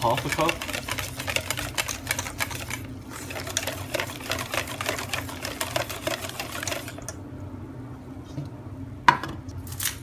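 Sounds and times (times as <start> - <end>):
whisk clattering in metal bowl: 0.0 - 7.0.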